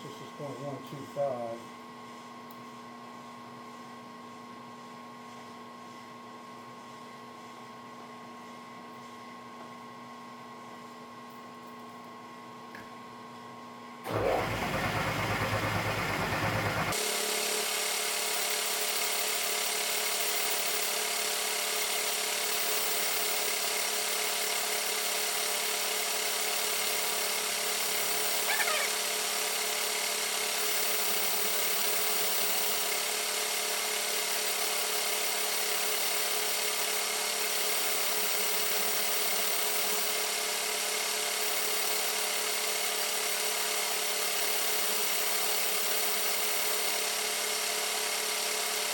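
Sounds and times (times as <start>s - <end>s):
drill bit squeal: 28.1s - 29.1s.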